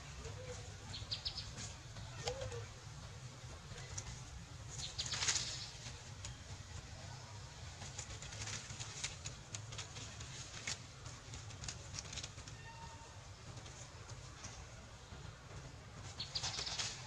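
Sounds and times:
leaves and branches rustling: 0:00.0 - 0:17.0
low steady rumble: 0:00.0 - 0:17.0
faint animal call: 0:12.5 - 0:13.2.

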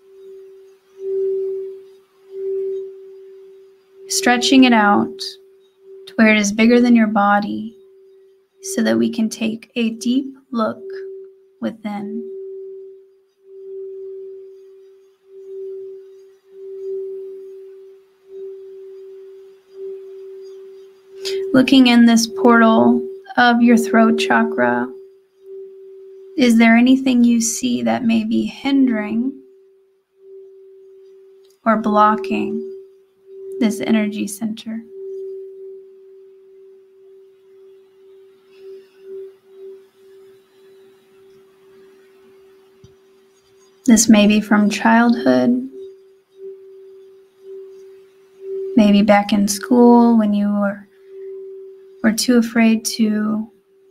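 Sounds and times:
singing bowl sustained tone: 0:00.0 - 0:53.9.

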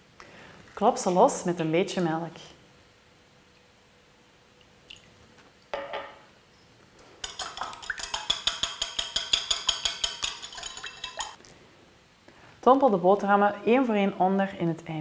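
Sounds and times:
whisk clinking against bowl: 0:07.2 - 0:11.4.

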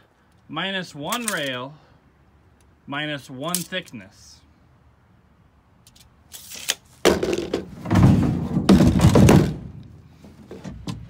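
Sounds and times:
wooden drawer thumping and scraping: 0:07.1 - 0:09.8.

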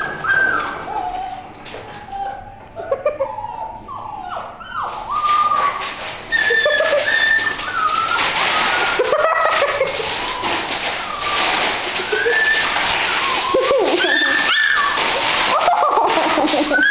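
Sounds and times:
puppies whining and yipping: 0:00.0 - 0:16.9
newspaper rustling: 0:05.2 - 0:16.9.

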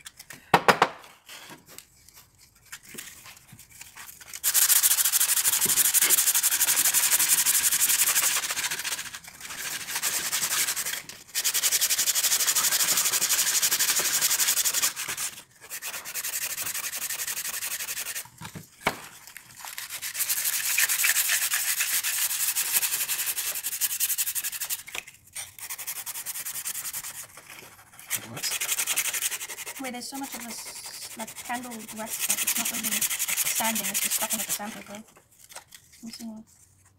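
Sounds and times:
sandpaper rasping on wood: 0:04.3 - 0:18.3, 0:19.7 - 0:35.0.

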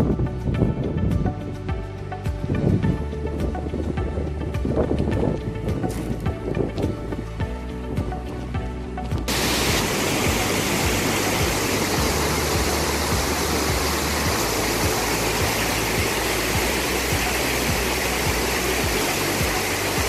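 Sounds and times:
faint music: 0:00.0 - 0:20.0
river water rushing over weir: 0:09.3 - 0:20.0.

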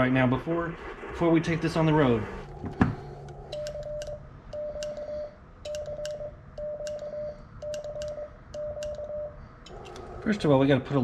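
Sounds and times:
key clicks: 0:03.2 - 0:10.2
morse code beeps: 0:03.3 - 0:09.9.

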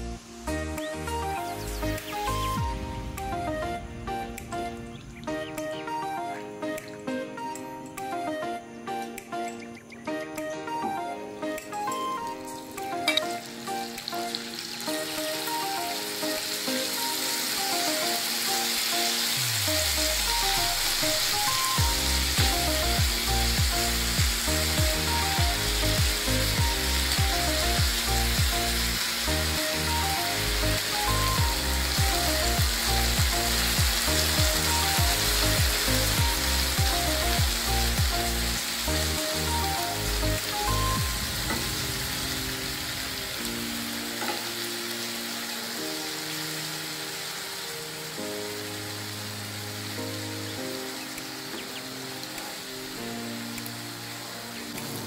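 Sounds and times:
chicken sizzling in hot fat: 0:11.9 - 0:55.0
background music with bass beat: 0:19.5 - 0:42.6.

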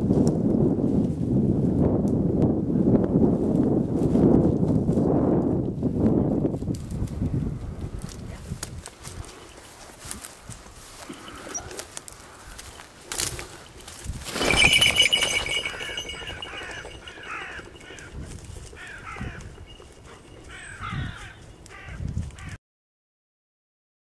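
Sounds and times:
rustling and flapping: 0:13.1 - 0:21.5
brief ringing tone: 0:14.3 - 0:20.8
bird harsh calls: 0:14.4 - 0:22.5.

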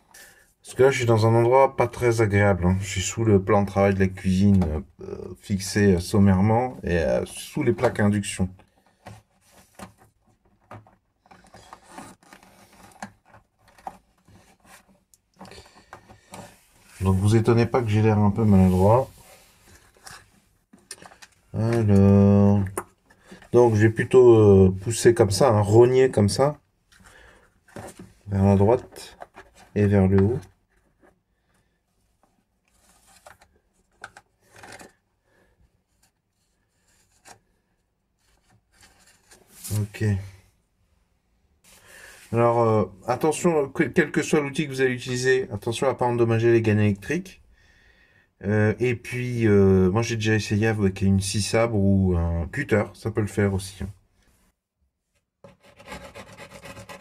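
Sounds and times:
hands handling electrical cables: 0:07.6 - 0:17.8, 0:18.4 - 0:24.1, 0:26.9 - 0:31.2, 0:32.1 - 0:35.1
plastic box scraping: 0:08.7 - 0:21.9.

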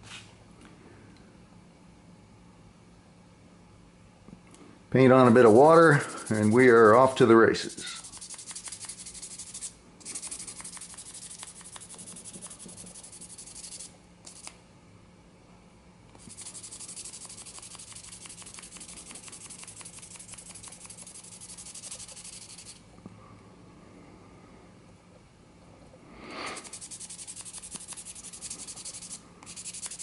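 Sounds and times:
sandpaper rubbing strokes: 0:05.2 - 0:14.5, 0:16.2 - 0:22.8, 0:26.5 - 0:30.0.

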